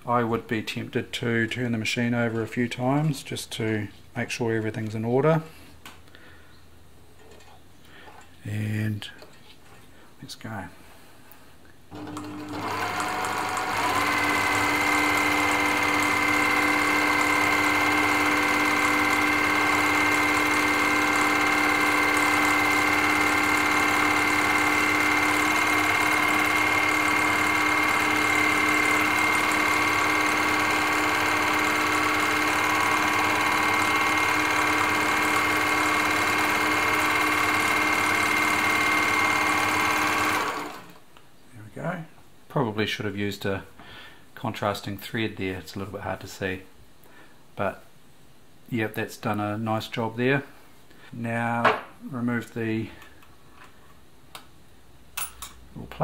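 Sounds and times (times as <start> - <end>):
sewing machine stitching: 11.9 - 41.0.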